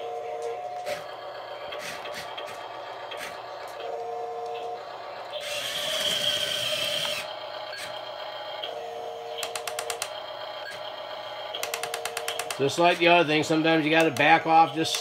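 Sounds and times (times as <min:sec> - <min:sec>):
small electric motors whining: 0:00.0 - 0:12.8
ratchety clicks: 0:09.4 - 0:10.2, 0:11.6 - 0:12.8.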